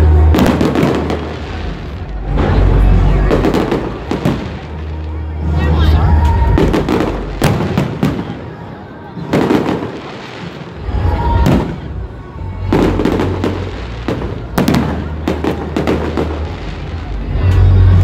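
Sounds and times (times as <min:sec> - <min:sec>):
deep low rumble: 0:00.0 - 0:07.5
fireworks bangs and pops: 0:00.1 - 0:05.6, 0:06.2 - 0:18.0.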